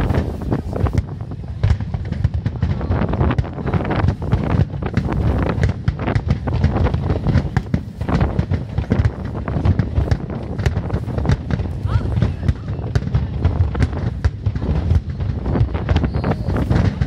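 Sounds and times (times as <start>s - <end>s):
fireworks popping and banging: 0.0s - 17.0s
wind on microphone: 0.0s - 17.0s.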